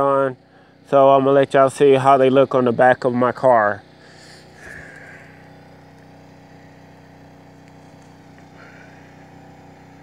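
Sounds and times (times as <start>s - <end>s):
car engine idling: 2.6s - 10.0s.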